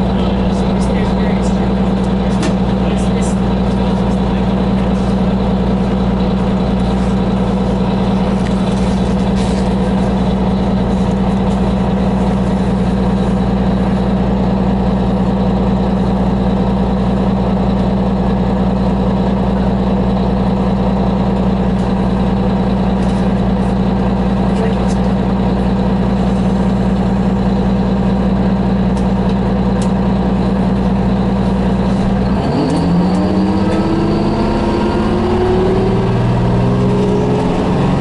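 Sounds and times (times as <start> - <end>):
bus diesel engine drone: 0.0 - 38.0.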